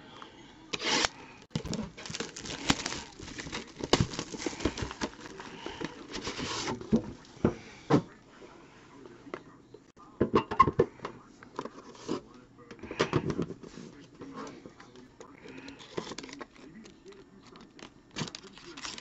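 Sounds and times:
wrapping crinkling and tearing: 0.8 - 7.0, 15.0 - 19.0.

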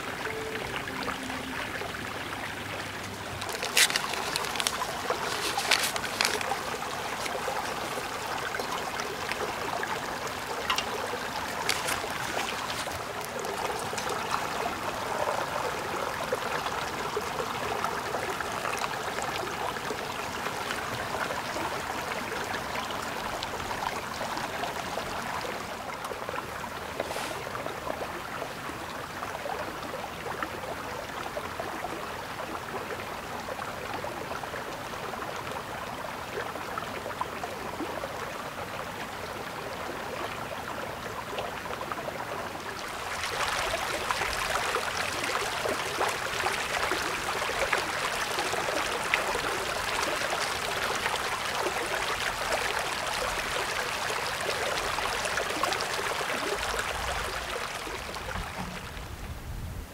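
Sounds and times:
rain pattering: 0.0 - 28.1, 42.0 - 59.5.

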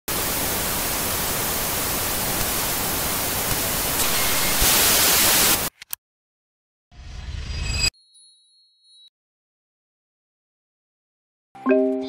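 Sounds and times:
tv static hiss: 0.1 - 5.7.

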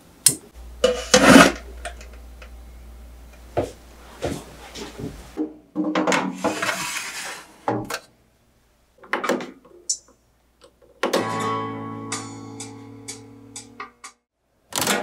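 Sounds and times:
metal tray scraping: 0.8 - 1.7, 6.2 - 7.6.

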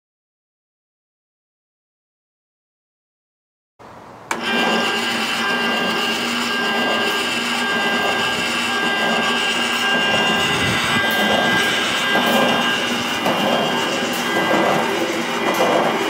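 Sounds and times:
rotisserie motor whine: 4.3 - 16.0.

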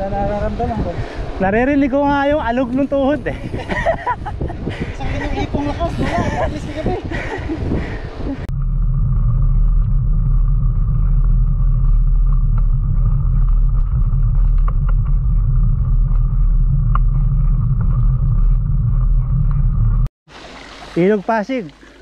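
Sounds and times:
bike tyre rumbling on asphalt: 0.0 - 20.1.

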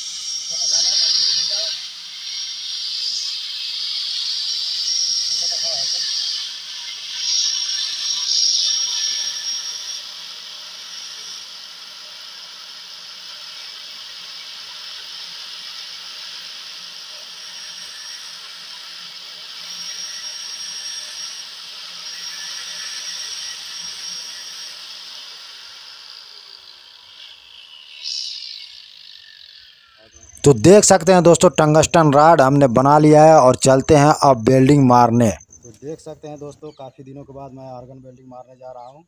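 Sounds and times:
angle grinder running: 0.0 - 30.9
grinder winding down: 0.0 - 37.7
grinding hiss: 0.0 - 39.0.

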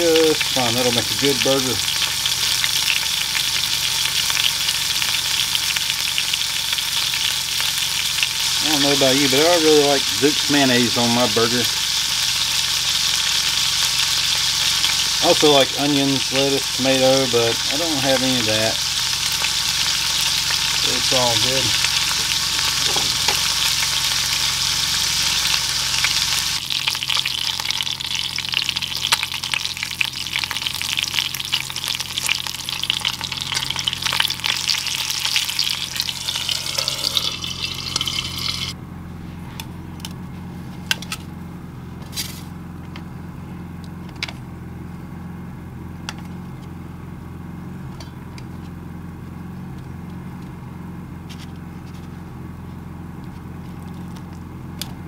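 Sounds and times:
patty sizzling in grease: 0.0 - 38.8
low hum: 0.3 - 55.0.

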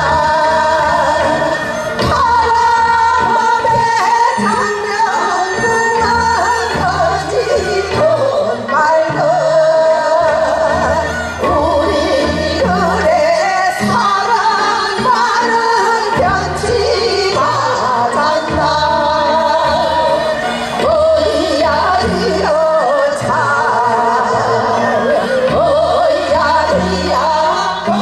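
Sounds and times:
women singing together: 0.0 - 28.0.

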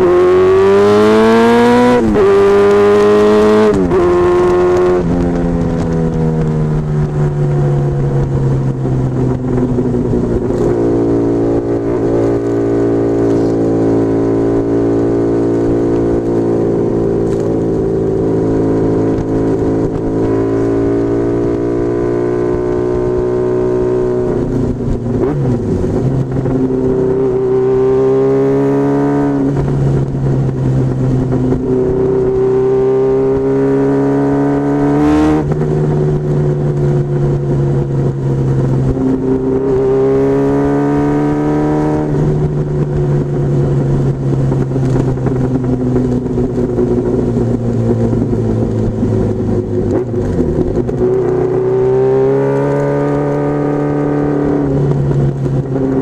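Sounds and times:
motorcycle engine revving: 0.0 - 56.0.

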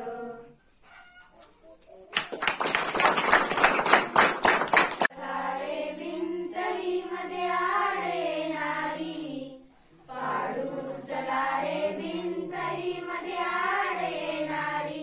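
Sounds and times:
girls singing in unison: 0.0 - 0.6, 5.1 - 15.0
audience applause: 2.1 - 5.1.

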